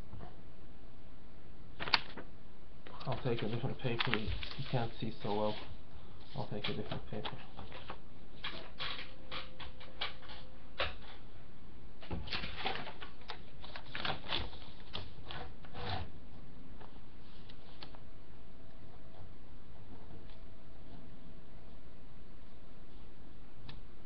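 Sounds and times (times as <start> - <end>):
paper shuffling on a desk: 3.0 - 11.2, 12.0 - 16.1.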